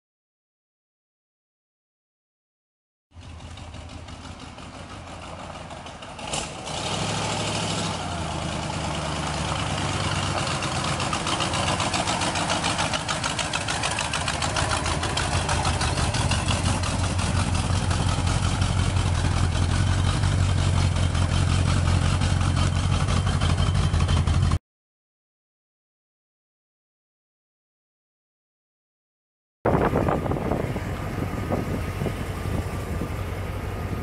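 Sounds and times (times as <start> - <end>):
car engine idling: 3.2 - 24.6, 29.7 - 34.0.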